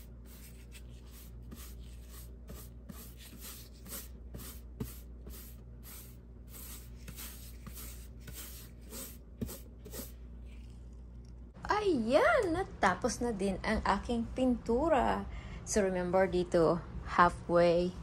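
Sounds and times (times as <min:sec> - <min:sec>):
paintbrush swishing on wall: 0:00.0 - 0:10.6.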